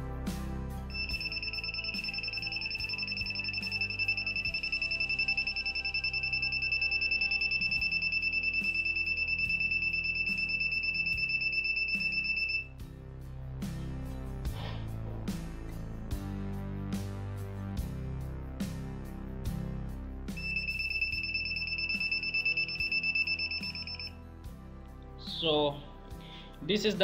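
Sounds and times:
background music: 0.0s - 27.0s
piezo buzzer high-pitched tone: 0.9s - 12.7s, 20.3s - 24.2s.

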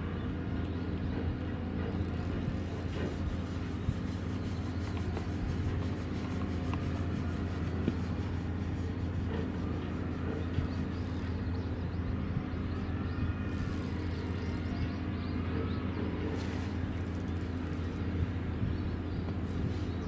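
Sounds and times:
fishing reel ticking: 13.5s - 14.8s.

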